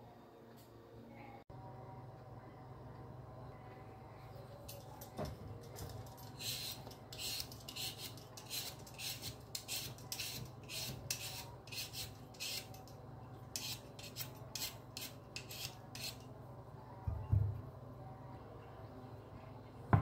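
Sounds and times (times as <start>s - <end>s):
peeler scraping potato skin: 6.1s - 16.3s.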